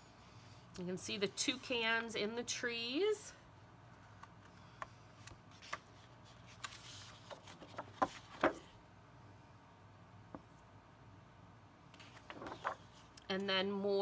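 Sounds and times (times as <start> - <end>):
paper crackling: 5.2 - 8.7, 12.0 - 13.1.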